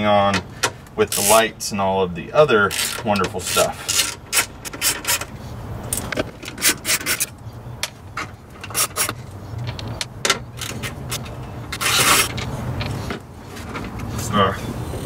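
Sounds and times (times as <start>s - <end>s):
hand ratchet clicking: 1.1s - 1.4s, 2.7s - 5.3s.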